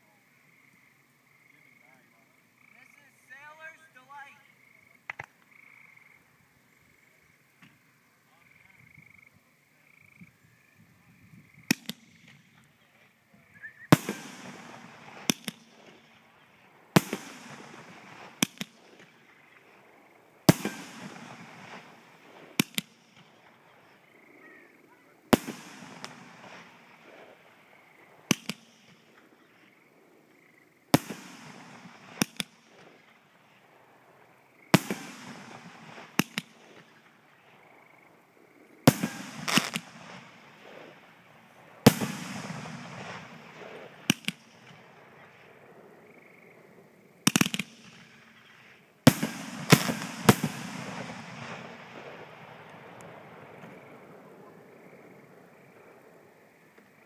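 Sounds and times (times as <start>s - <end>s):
fireworks bangs: 11.6s - 12.7s, 13.8s - 24.0s, 25.2s - 29.7s, 30.9s - 37.6s, 38.8s - 45.6s, 47.2s - 54.4s
rush of falling firework stars: 11.6s - 45.7s, 47.2s - 56.0s.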